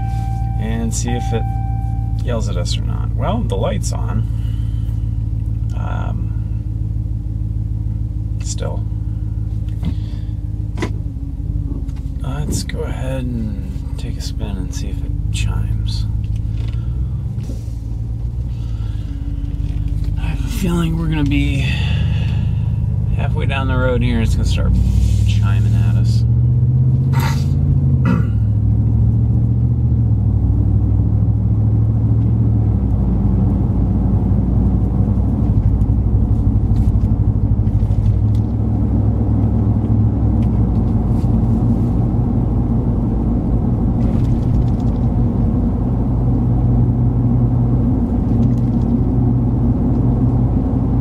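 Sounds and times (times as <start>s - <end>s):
engine and road rumble: 0.0s - 51.0s.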